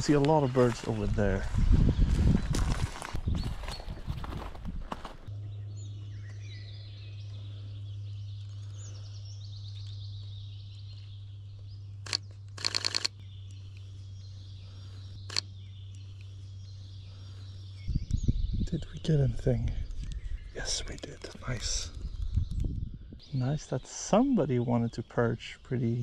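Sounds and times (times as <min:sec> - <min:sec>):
songbirds singing and chirping: 0:00.0 - 0:26.0
steady low hum: 0:00.0 - 0:26.0
camera shutter clicks: 0:12.0 - 0:13.1.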